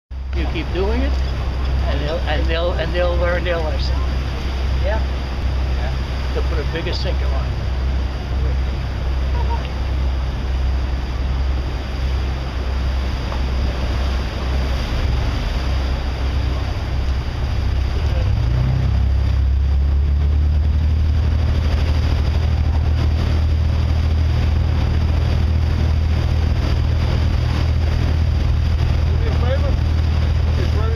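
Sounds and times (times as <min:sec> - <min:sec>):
boat engine running: 0:00.1 - 0:30.9
water rushing past hull: 0:00.1 - 0:30.9
wind on microphone: 0:07.2 - 0:30.9.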